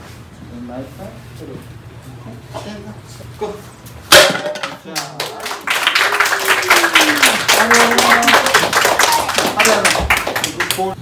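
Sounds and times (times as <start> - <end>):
audience clapping and cheering: 5.0 - 11.0.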